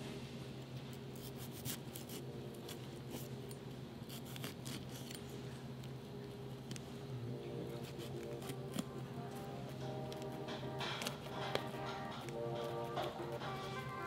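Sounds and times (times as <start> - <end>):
knife cutting pepper: 1.2 - 5.3, 7.7 - 9.0, 9.6 - 14.0.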